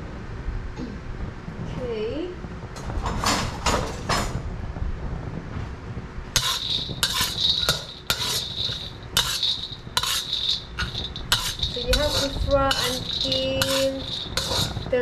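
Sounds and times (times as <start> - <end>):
metal spatula scraping a wok: 6.4 - 15.0
peanuts frying in oil: 6.4 - 15.0.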